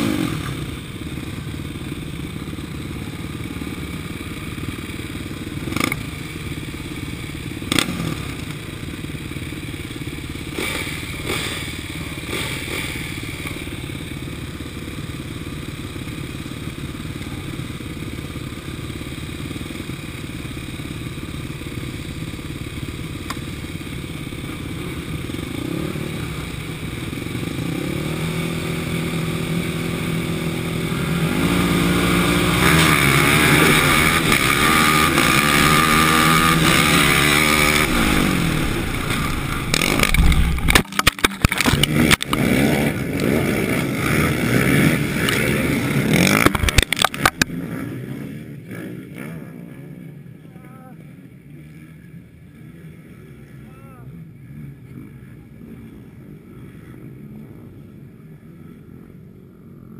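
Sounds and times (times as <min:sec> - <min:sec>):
quad bike engines revving: 0:00.0 - 0:59.9
quad bike crashing: 0:32.2 - 0:47.5.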